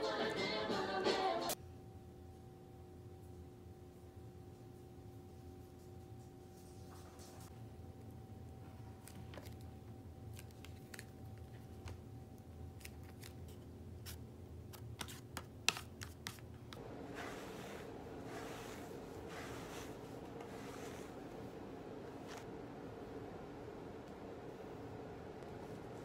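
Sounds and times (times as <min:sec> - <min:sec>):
hairbrush swishing through hair: 0:16.8 - 0:22.5.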